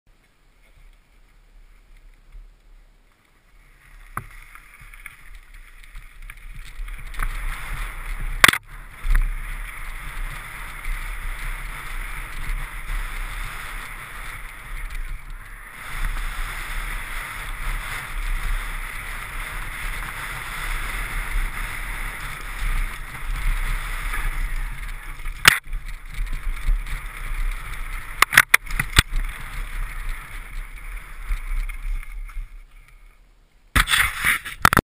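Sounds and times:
wind and tyre noise: 0:00.1 - 0:34.8
sharp knocks from bike: 0:08.4 - 0:09.2, 0:25.4 - 0:25.7, 0:33.8 - 0:34.7.

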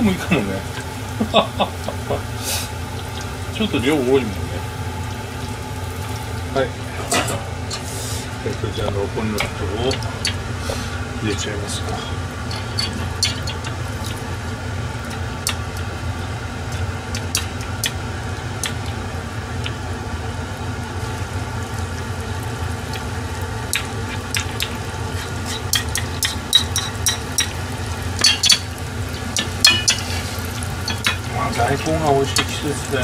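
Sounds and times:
fish balls deep-frying in oil: 0:00.0 - 0:33.0
steady low hum: 0:00.0 - 0:33.0
metal spoons clicking on pot: 0:12.5 - 0:13.6, 0:25.7 - 0:27.6, 0:28.2 - 0:28.7, 0:29.4 - 0:30.1, 0:30.8 - 0:31.3.

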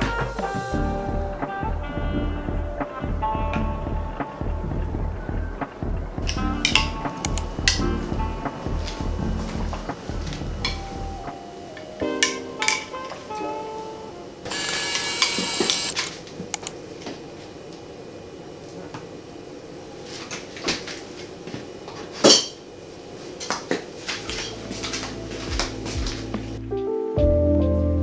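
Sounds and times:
low hum: 0:00.7 - 0:11.3
sharp click: 0:06.7 - 0:07.5.

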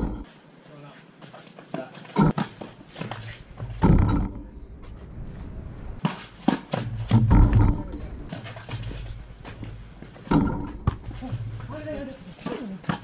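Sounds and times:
basketball hitting backboard and rim: 0:00.0 - 0:00.3, 0:02.2 - 0:02.6, 0:03.6 - 0:04.5, 0:06.0 - 0:08.0, 0:09.6 - 0:11.7.

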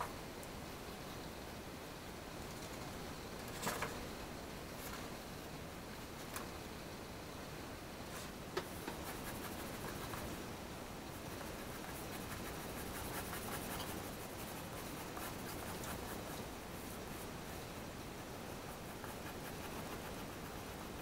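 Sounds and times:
pencil scratching on paper: 0:08.9 - 0:10.3, 0:11.3 - 0:17.3, 0:18.7 - 0:21.0.

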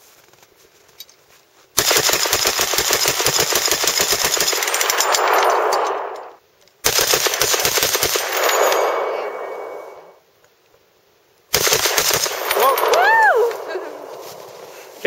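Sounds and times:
machine gun firing rapid strings: 0:01.8 - 0:10.0, 0:11.5 - 0:12.8
gunshot echo: 0:04.8 - 0:06.4.

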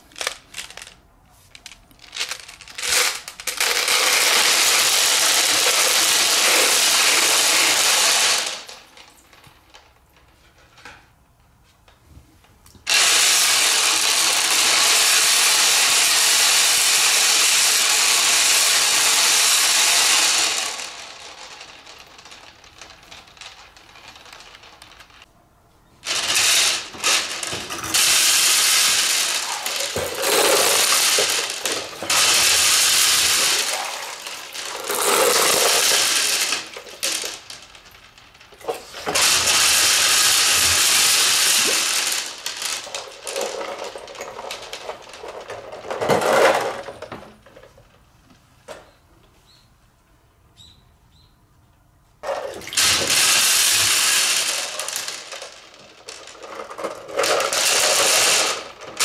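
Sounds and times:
clicks of marbles: 0:00.0 - 0:11.0, 0:12.7 - 0:25.3, 0:26.0 - 0:48.0, 0:52.2 - 0:59.0
marbles pouring into water: 0:02.2 - 0:08.7, 0:12.9 - 0:25.1, 0:26.0 - 0:45.9, 0:52.5 - 0:59.0.

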